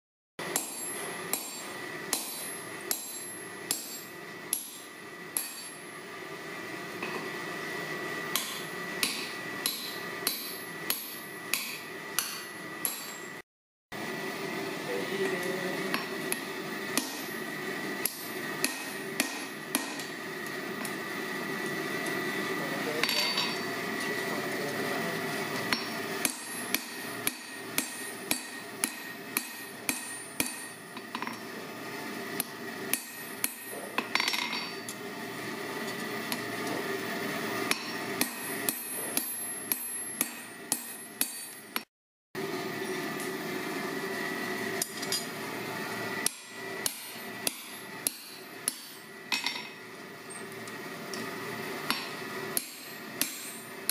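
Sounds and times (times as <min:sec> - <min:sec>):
hammer striking hot steel on anvil: 0:00.4 - 0:06.0, 0:08.3 - 0:13.4, 0:15.9 - 0:21.0, 0:23.0 - 0:24.2, 0:25.6 - 0:31.5, 0:32.4 - 0:35.0, 0:37.6 - 0:41.9, 0:44.8 - 0:45.3, 0:46.2 - 0:49.9, 0:51.8 - 0:53.9
steady hum: 0:14.0 - 0:41.8.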